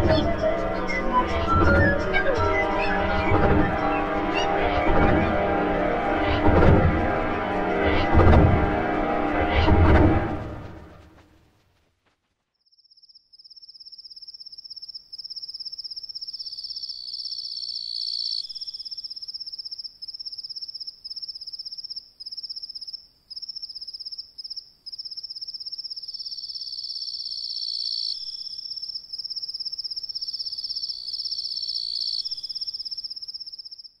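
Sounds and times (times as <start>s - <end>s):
crickets chirring: 12.8s - 34.0s
lower insect trill: 12.8s - 34.0s.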